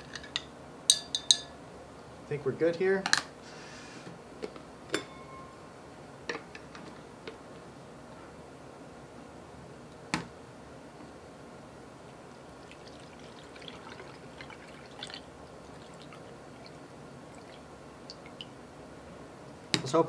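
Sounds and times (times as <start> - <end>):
liquid trickling and dripping: 12.6 - 18.6.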